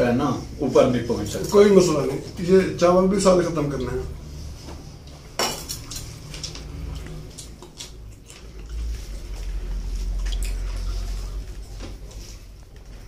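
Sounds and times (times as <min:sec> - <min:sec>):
fingers squishing in food: 0:05.0 - 0:11.2
chewing and lip smacking: 0:05.0 - 0:12.8.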